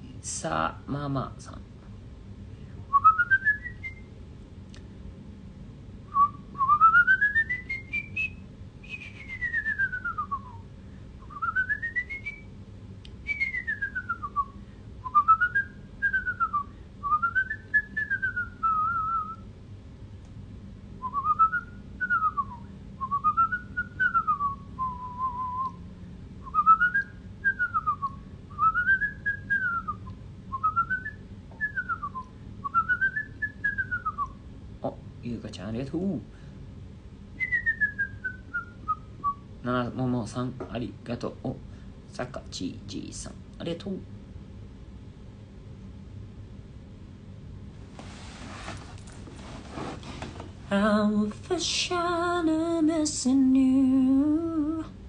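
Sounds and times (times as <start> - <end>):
man whistling a tune: 2.9 - 4.1, 6.1 - 10.6, 11.2 - 12.5, 13.2 - 19.4, 21.0 - 25.8, 26.4 - 34.4, 37.4 - 39.4.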